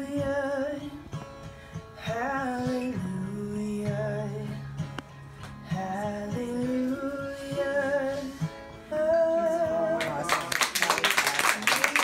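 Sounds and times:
acoustic guitar strumming: 0.0 - 10.6
woman singing: 5.7 - 10.4.

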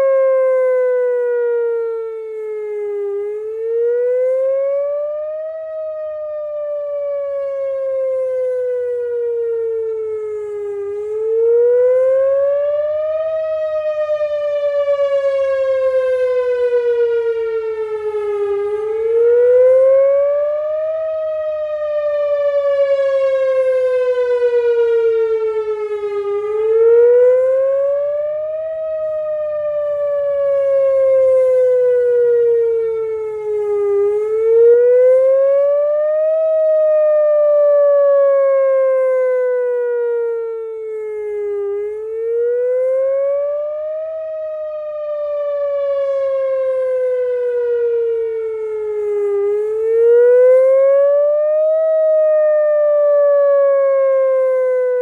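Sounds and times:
rotating siren wailing: 0.0 - 55.0.

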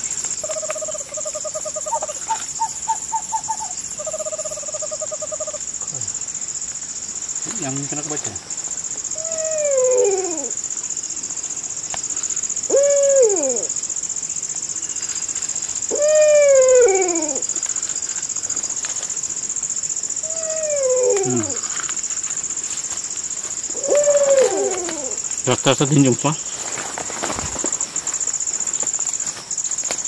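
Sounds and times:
hooting call: 0.0 - 6.1, 9.1 - 10.6, 12.6 - 13.8, 15.9 - 17.6, 20.2 - 21.8, 23.7 - 25.8
insects droning: 0.0 - 30.0.

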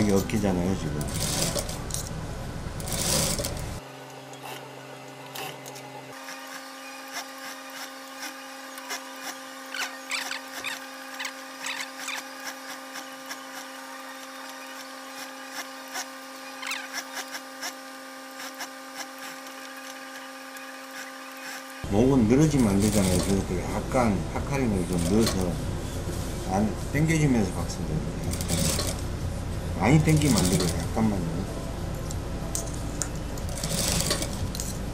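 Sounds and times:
steady machine hum: 0.0 - 34.9
sewing machine stitching: 1.0 - 2.1, 2.8 - 3.8, 5.3 - 21.8, 22.5 - 23.5, 28.2 - 29.0, 30.0 - 30.9, 33.4 - 34.7.

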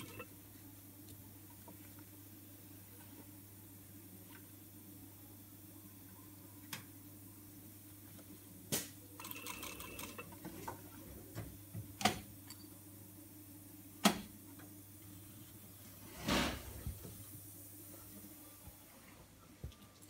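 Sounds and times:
sewing machine humming: 0.0 - 0.3, 9.2 - 10.4.

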